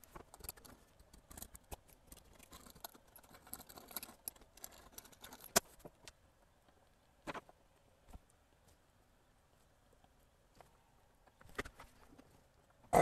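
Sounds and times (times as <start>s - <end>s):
hand tools clicking and scraping: 0.0s - 5.9s.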